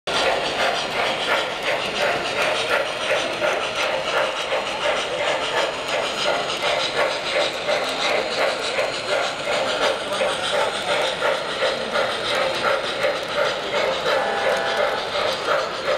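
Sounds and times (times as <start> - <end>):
model steam locomotive chuffing: 0.1 - 15.9.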